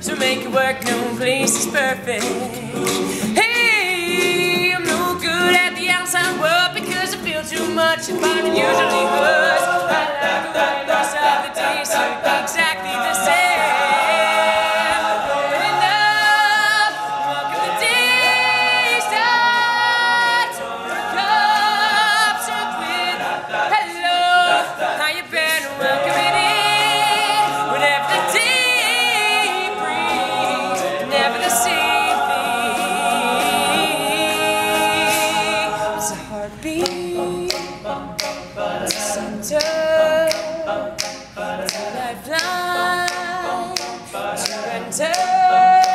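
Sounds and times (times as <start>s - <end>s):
male a cappella group singing: 0.0s - 45.9s
sharp percussive ticks: 36.8s - 43.2s, 43.8s - 45.9s.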